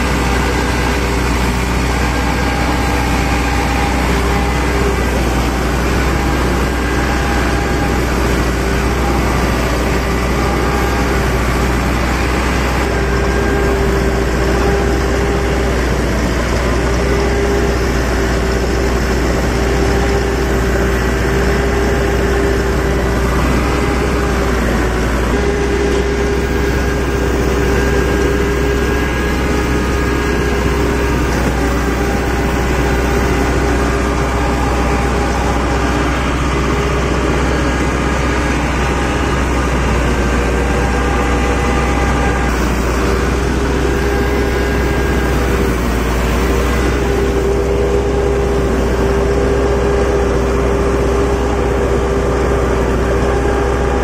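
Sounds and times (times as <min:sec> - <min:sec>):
combine harvester engine drone: 0:00.0 - 0:54.0
machinery whine: 0:00.0 - 0:54.0.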